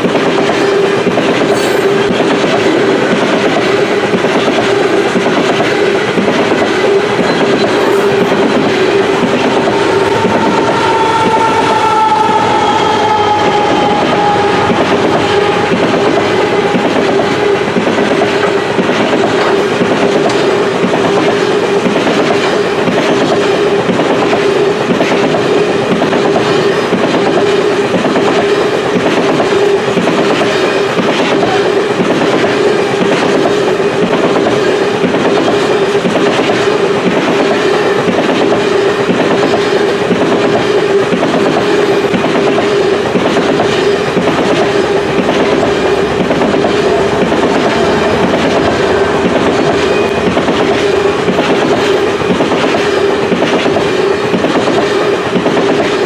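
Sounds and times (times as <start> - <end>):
clickety-clack over rail joints: 0.0 - 56.0
train wheels rumbling on rail: 0.0 - 56.0
steady ringing tone: 43.8 - 53.3.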